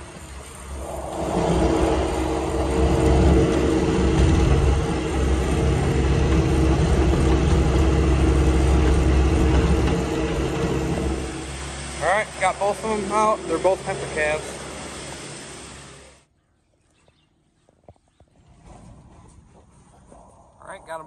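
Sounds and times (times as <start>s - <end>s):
loader engine running: 0.0s - 16.2s.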